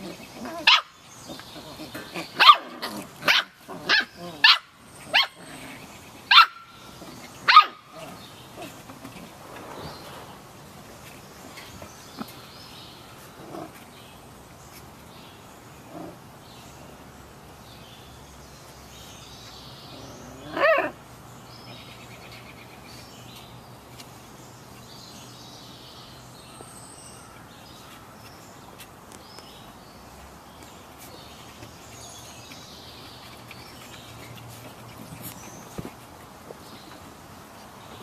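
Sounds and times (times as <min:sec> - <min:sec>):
puppy yelp: 0:06.3 - 0:06.7.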